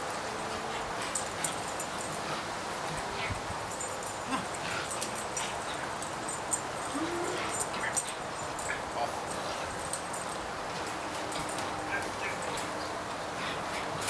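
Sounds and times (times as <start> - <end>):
puppy whimpering: 6.8 - 8.1.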